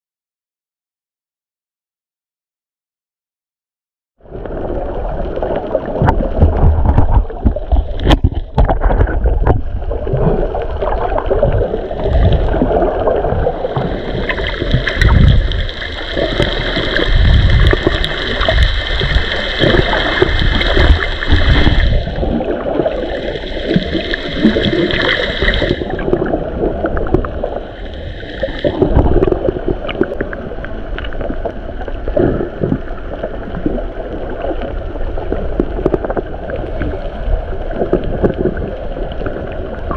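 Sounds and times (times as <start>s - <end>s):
underwater water rushing: 4.2s - 39.9s
small crackling clicks: 30.9s - 31.9s.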